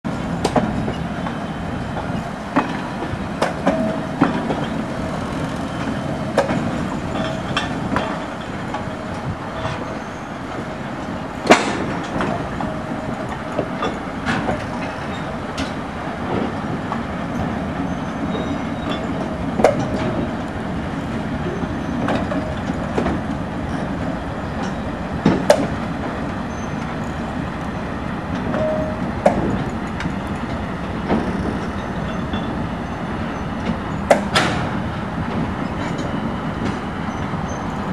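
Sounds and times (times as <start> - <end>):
diesel locomotive engine rumble: 0.1 - 37.9
wheels and couplings knocking: 2.0 - 9.9, 28.3 - 32.6, 33.6 - 37.9.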